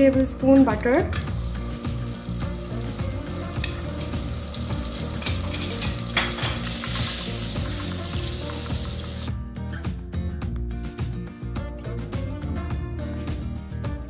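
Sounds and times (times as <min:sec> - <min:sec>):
butter sizzling in a pot: 0:01.2 - 0:09.3.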